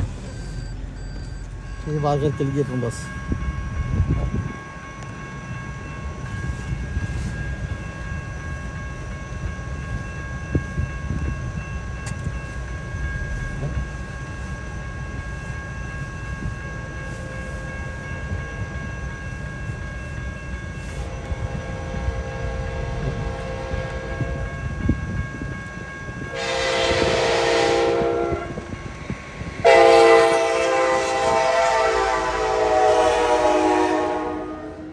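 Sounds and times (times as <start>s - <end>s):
train horn blasts: 20.9s - 24.6s, 26.3s - 28.7s, 29.6s - 34.9s.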